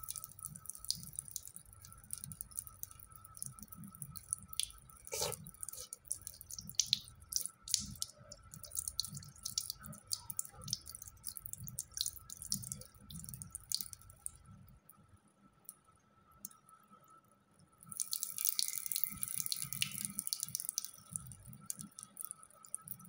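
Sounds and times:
cat lapping water: 0.0s - 14.0s
water dripping into basin: 0.0s - 15.0s, 15.6s - 16.8s, 17.8s - 23.0s.

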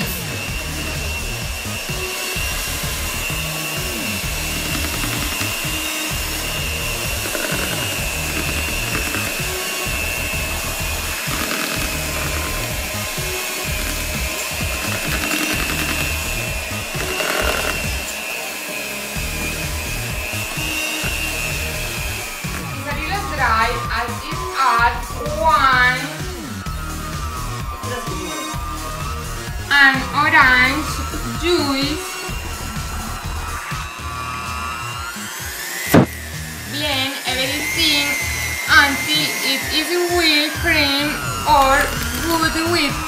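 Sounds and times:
beaters churning thick batter: 0.0s - 43.0s
electric hand mixer whining: 0.0s - 43.0s
dry ingredients pouring: 1.0s - 23.0s.

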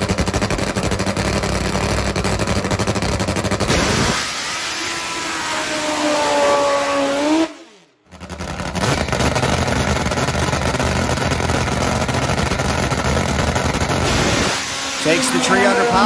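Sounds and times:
drag motorcycle engine revving: 0.0s - 16.0s.

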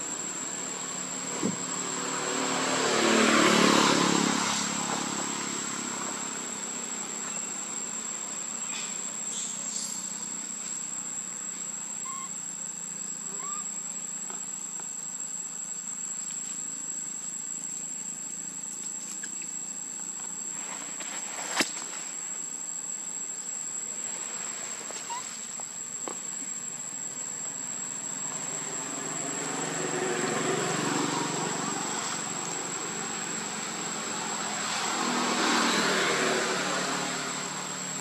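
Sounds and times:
high-pitched insect drone: 0.0s - 20.9s, 22.0s - 38.0s
vehicle passing: 0.5s - 7.2s, 27.9s - 38.0s.

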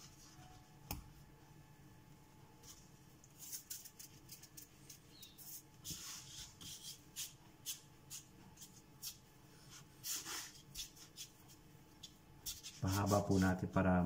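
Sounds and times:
palms rubbing dough on wood: 3.5s - 13.8s.

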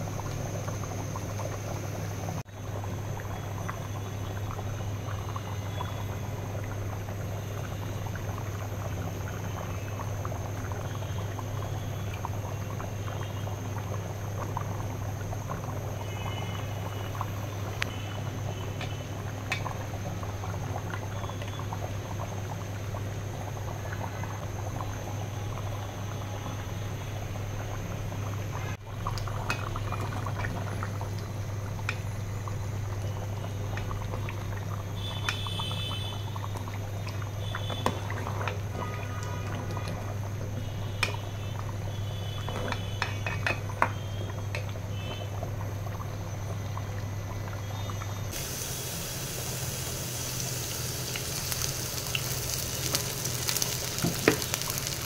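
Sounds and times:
broth bubbling at a boil: 0.0s - 55.0s
constant low hum: 0.0s - 55.0s.

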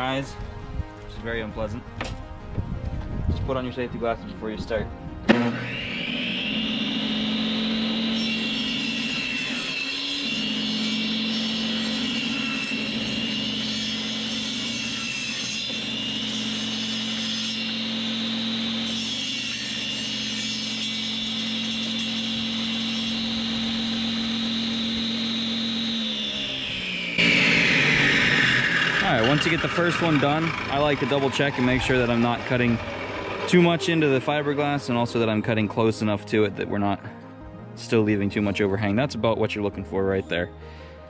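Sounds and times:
table saw whining: 5.2s - 35.4s.

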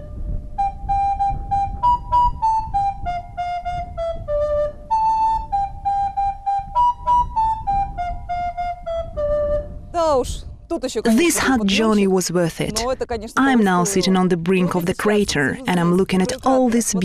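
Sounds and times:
recorder melody: 0.0s - 9.9s.

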